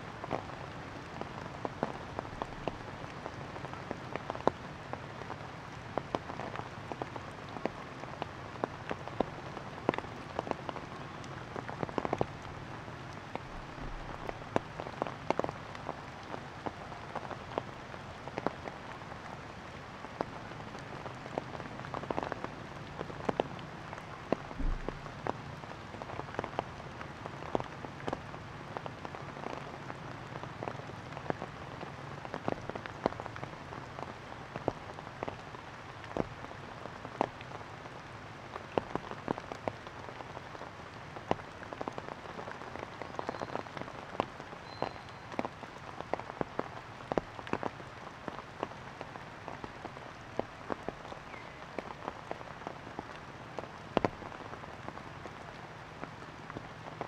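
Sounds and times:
rain hiss: 0:00.0 - 0:57.0
raindrops hitting surfaces: 0:00.0 - 0:57.0.

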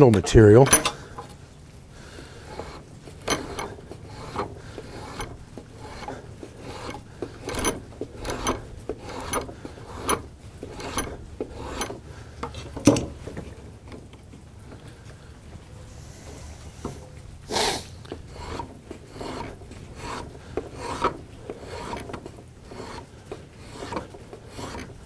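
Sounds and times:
draw knife scraping wood: 0:02.5 - 0:13.6, 0:18.1 - 0:25.0.

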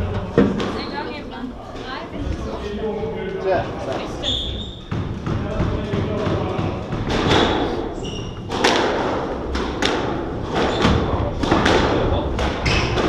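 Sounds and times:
squash ball hitting rackets and walls: 0:00.0 - 0:00.9, 0:03.9 - 0:13.0
shoes squeaking on wooden floor: 0:03.8 - 0:05.2, 0:07.3 - 0:08.7, 0:10.4 - 0:11.2, 0:12.5 - 0:13.0.

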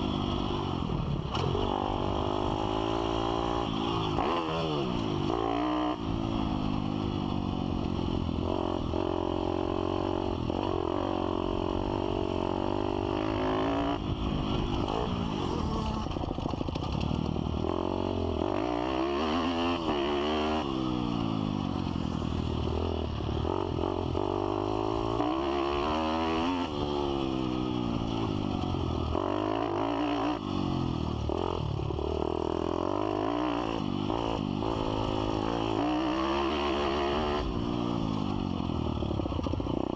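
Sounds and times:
motorbike engine revving: 0:00.0 - 0:06.9.

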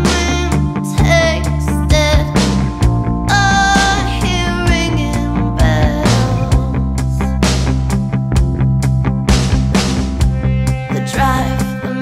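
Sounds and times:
instrumental rock band music: 0:00.0 - 0:12.0.

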